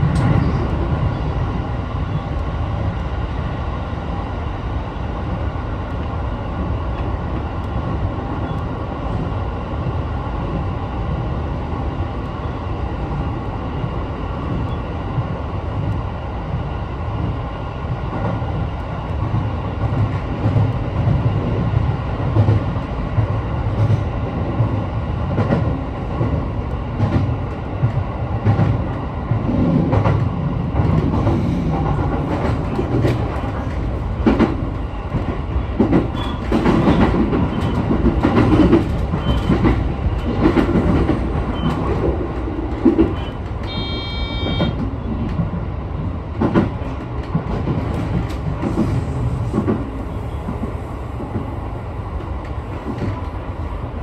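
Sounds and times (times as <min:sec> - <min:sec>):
train wheels rumbling: 0:00.0 - 0:54.0
wheels clacking over rail joints: 0:28.4 - 0:43.8.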